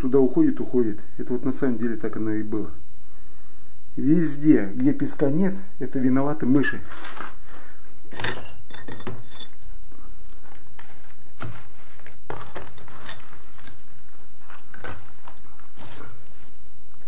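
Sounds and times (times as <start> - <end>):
concrete rubble clinking and knocking: 8.1 - 9.6.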